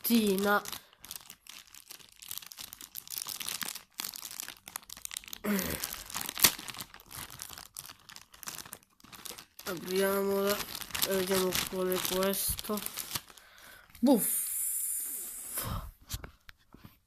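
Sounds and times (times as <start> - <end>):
plastic packet crinkling: 0.0 - 13.8.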